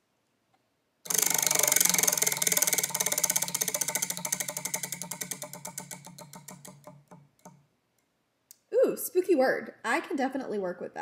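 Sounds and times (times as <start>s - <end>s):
prize wheel clicking: 1.1s - 7.6s.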